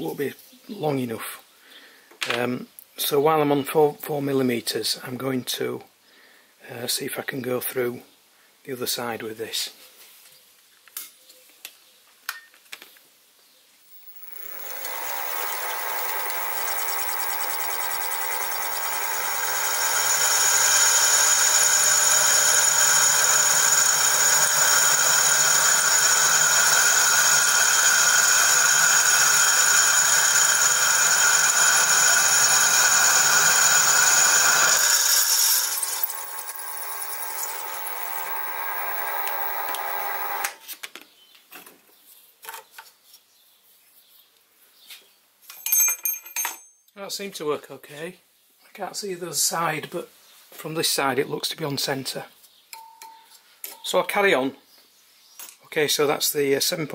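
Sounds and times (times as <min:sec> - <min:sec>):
mill motor whining: 0:13.9 - 0:40.6.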